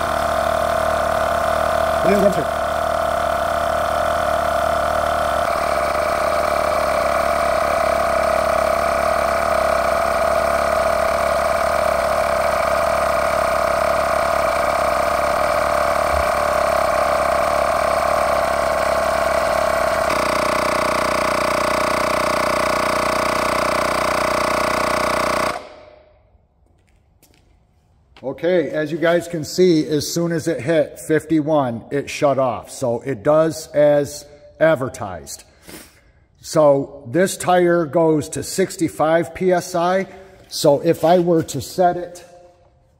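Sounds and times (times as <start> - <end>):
portable tire inflator running: 0.0 - 27.4, 35.5 - 36.6.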